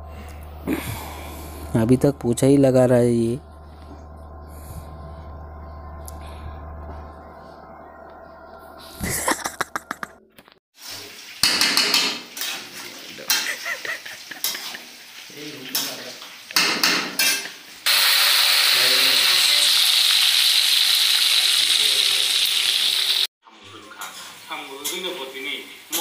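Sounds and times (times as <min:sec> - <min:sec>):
chicken sizzling in oil: 0:10.8 - 0:16.7, 0:17.3 - 0:23.3.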